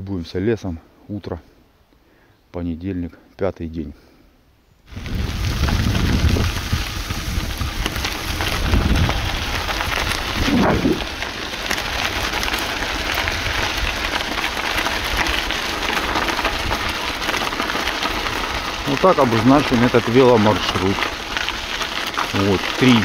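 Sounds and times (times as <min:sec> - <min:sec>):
bicycle tyres on gravel: 0:04.9 - 0:23.0.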